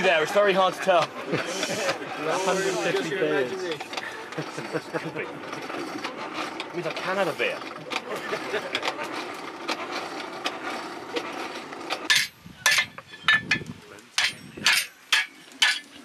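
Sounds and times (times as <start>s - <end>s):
hammer striking steel on anvil: 14.2s - 15.9s.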